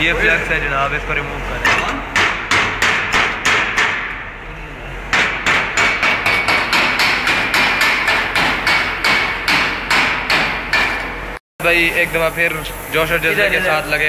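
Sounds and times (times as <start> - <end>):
hammer striking steel: 1.6 - 4.3, 5.1 - 11.4.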